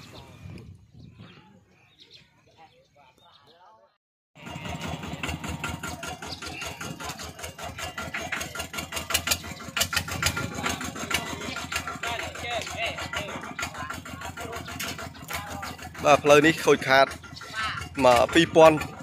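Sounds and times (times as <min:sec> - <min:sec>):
engine knocking: 0:04.4 - 0:19.0
small engine humming: 0:04.4 - 0:19.0.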